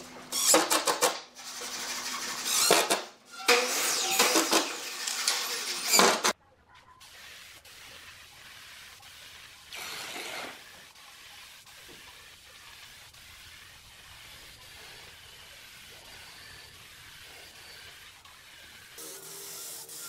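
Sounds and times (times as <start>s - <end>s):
spray gun hissing: 7.0s - 20.0s.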